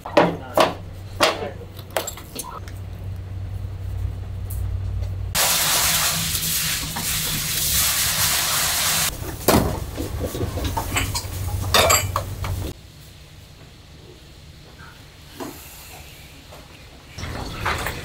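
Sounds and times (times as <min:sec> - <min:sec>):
low steady hum: 0:00.0 - 0:07.1
pots and dishes clanking: 0:09.1 - 0:12.7, 0:17.2 - 0:18.0.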